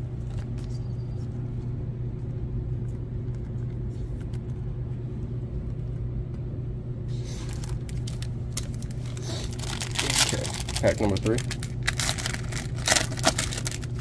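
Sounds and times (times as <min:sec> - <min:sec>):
steady low hum: 0:00.0 - 0:14.0
plastic rustle: 0:07.2 - 0:14.0.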